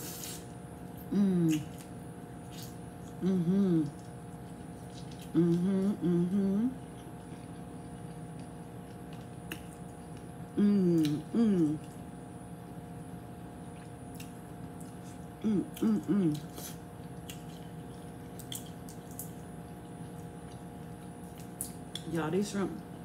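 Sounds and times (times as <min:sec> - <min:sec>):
woman humming while eating: 0:01.0 - 0:01.8, 0:03.1 - 0:04.1, 0:05.2 - 0:06.8, 0:10.5 - 0:12.0, 0:15.4 - 0:16.8.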